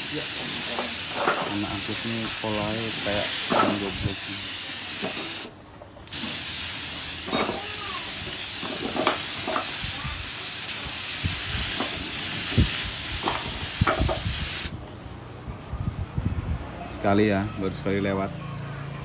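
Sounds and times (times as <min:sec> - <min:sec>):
paint spray gun hissing: 0:00.0 - 0:05.5, 0:06.1 - 0:14.8.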